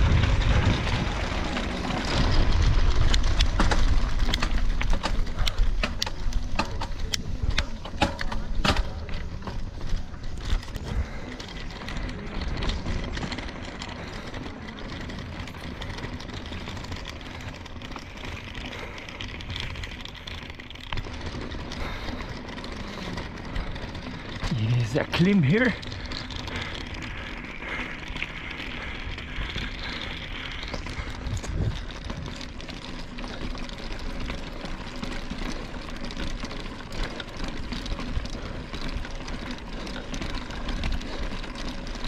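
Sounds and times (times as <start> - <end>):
low rumble: 0.0 - 7.8
bicycle rattling and clicking: 0.0 - 42.0
bicycle rolling noise: 0.0 - 42.0.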